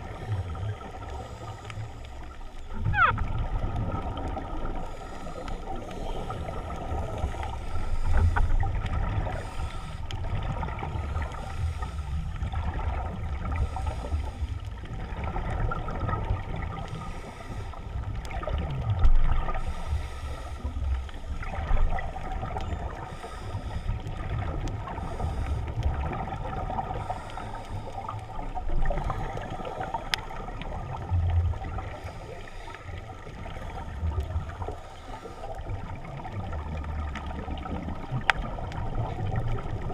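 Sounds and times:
gurgling exhaust bubbles: 0.0 - 1.4.

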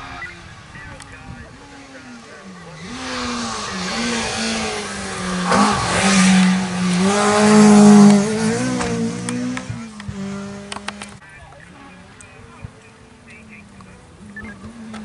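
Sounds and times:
rally car engine revving past: 1.6 - 11.2.

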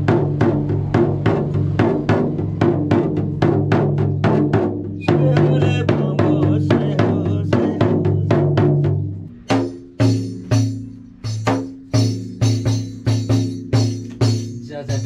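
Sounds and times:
frame drum beaten with a stick: 0.0 - 15.0.

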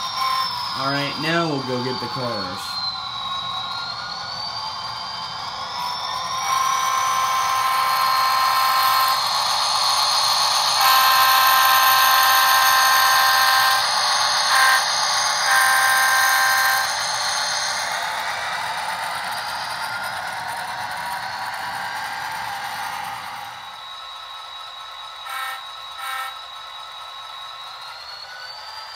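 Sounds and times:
model train horn through small speaker: 6.4 - 9.2, 10.8 - 13.8, 14.5 - 14.8, 15.5 - 16.9, 25.2 - 26.4.

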